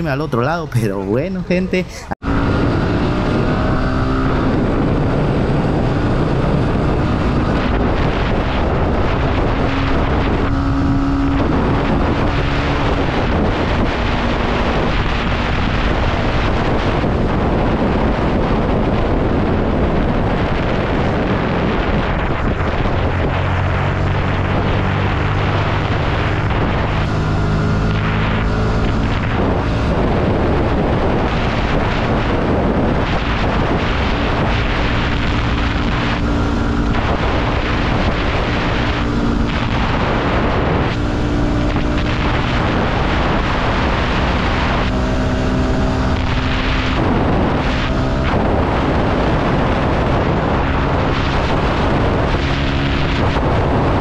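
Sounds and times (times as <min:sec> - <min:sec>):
wind rush on microphone: 0:00.0 - 0:54.0
motorcycle engine running: 0:02.2 - 0:54.0.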